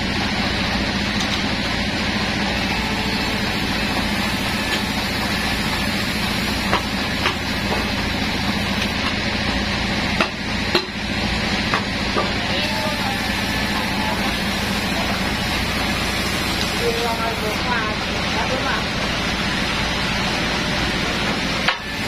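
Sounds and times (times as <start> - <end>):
sawmill machinery humming: 0.0 - 22.0.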